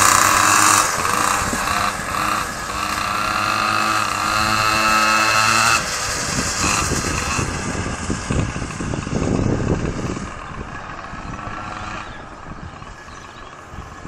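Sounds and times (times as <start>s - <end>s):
two-stroke engines running: 0.0s - 14.0s.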